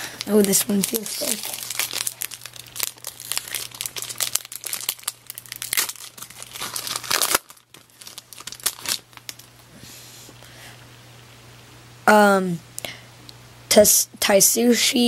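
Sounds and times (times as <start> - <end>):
foil wrapper tearing and crumpling: 0.2 - 9.6.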